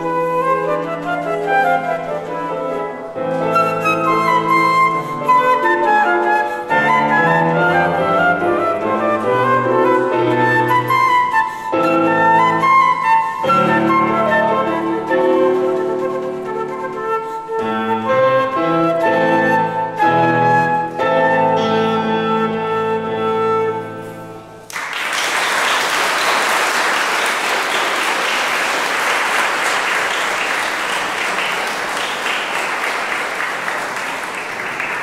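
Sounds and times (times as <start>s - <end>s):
flute and piano playing: 0.0s - 24.7s
audience applauding: 24.6s - 35.0s.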